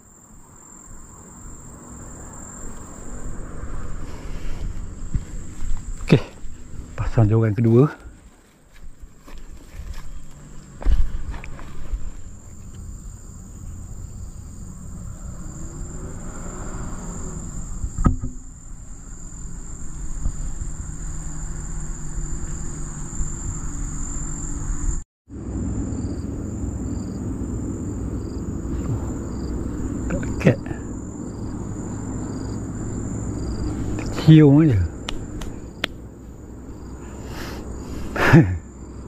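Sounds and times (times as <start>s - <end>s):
insects buzzing: 0.0s - 39.0s
sharp knock: 18.0s - 18.4s.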